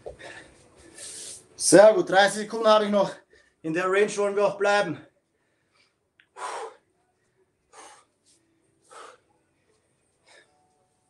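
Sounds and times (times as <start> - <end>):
man breathing hard: 5.4 - 6.9, 7.7 - 10.6.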